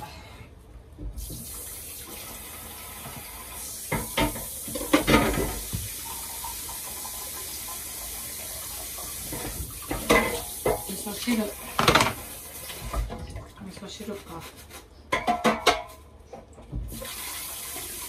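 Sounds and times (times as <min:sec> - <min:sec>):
tap running into sink: 0:03.9 - 0:07.1.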